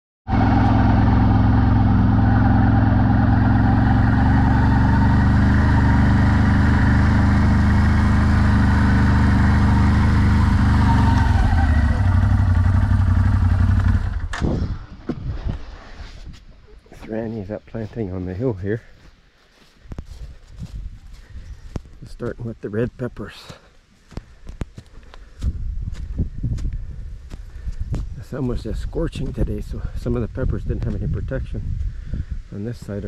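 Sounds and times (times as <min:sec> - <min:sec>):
small motorbike engine running: 0:00.3 - 0:14.7.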